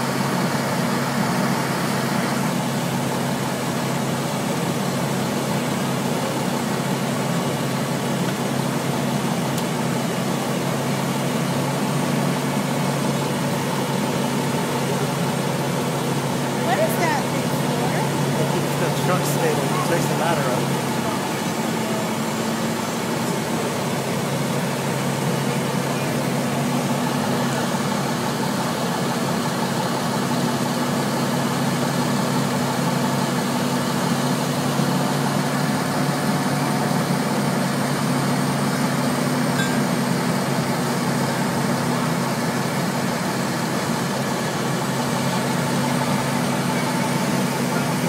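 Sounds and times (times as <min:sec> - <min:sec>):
fire engine engines humming: 0:00.0 - 0:48.0.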